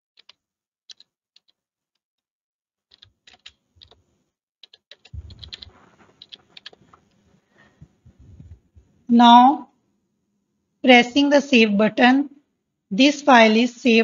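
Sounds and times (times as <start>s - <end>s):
typing on computer keyboard: 0.2s - 1.6s, 2.9s - 4.0s, 4.6s - 7.2s.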